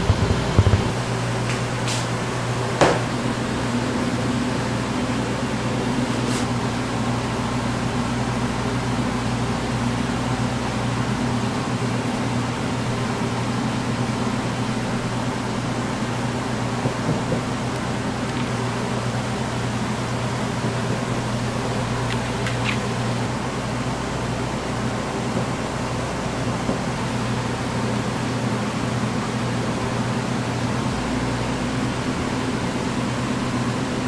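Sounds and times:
mechanical hum and whir: 0:00.0 - 0:34.0.

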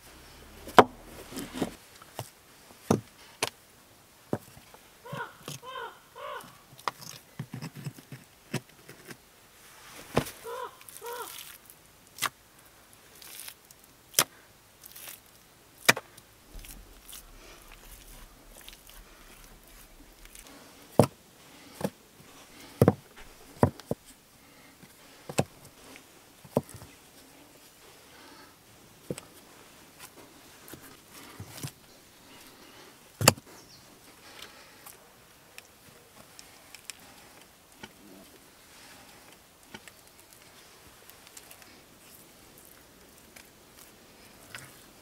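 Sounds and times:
stones knocking together: 0:15.9 - 0:21.2, 0:21.8 - 0:24.0.

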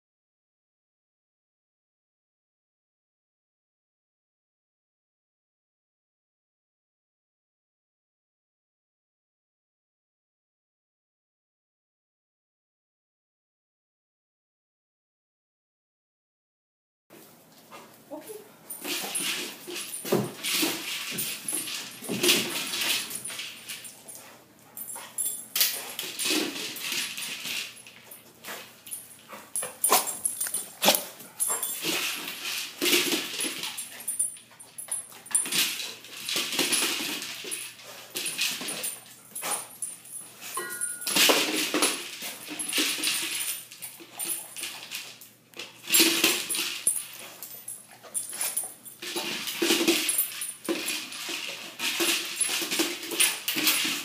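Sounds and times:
ball rattling on hard floor: 0:18.7 - 0:54.0
dog sounds: 0:28.4 - 0:32.0.

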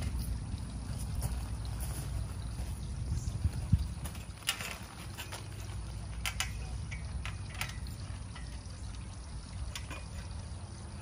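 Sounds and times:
wind rumbling on microphone: 0:00.0 - 0:11.0
gravel crunching: 0:00.8 - 0:07.4.

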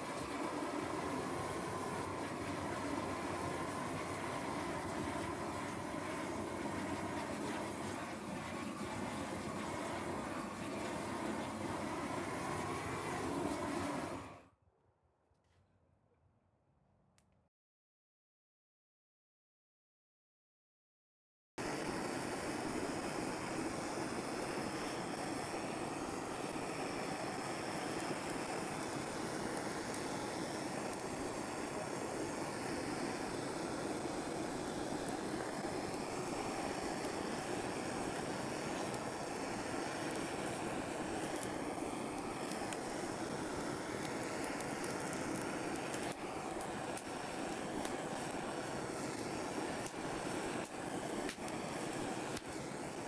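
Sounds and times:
gas torch flame hissing: 0:00.0 - 0:14.5, 0:21.6 - 0:53.0
charring wood crackling: 0:24.9 - 0:53.0.

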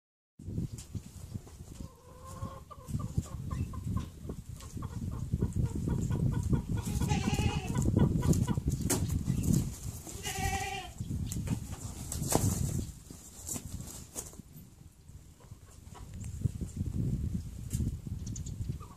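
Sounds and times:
chickens clucking: 0:00.8 - 0:10.2, 0:15.3 - 0:16.8, 0:17.7 - 0:18.9.

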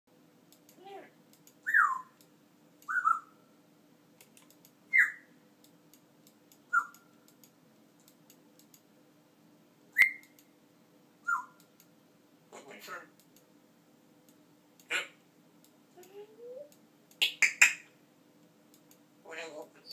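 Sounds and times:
parrot whistling: 0:01.7 - 0:02.1, 0:02.9 - 0:03.4, 0:04.9 - 0:05.3, 0:06.7 - 0:07.0, 0:10.0 - 0:10.3, 0:11.2 - 0:11.6.

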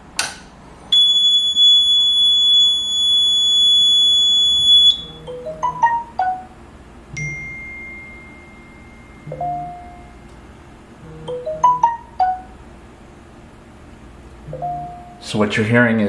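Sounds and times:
low steady tone: 0:00.8 - 0:12.6, 0:14.5 - 0:15.2
fire alarm high tone: 0:00.9 - 0:05.4
phone notification chimes: 0:04.9 - 0:06.5, 0:07.2 - 0:10.2.

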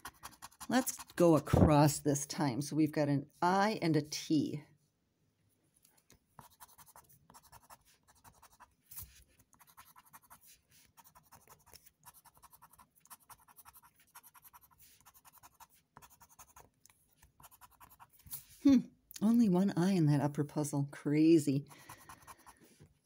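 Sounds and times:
scraper scratching a ticket: 0:00.0 - 0:01.3, 0:06.4 - 0:18.5, 0:21.7 - 0:22.7.

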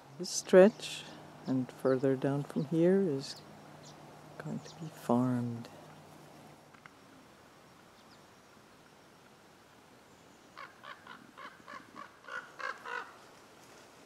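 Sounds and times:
ravens calling harshly: 0:10.6 - 0:13.2.

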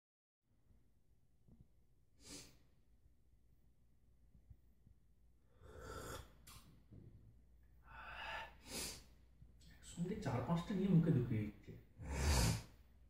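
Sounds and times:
person breathing softly: 0:05.4 - 0:06.4, 0:07.8 - 0:09.2.

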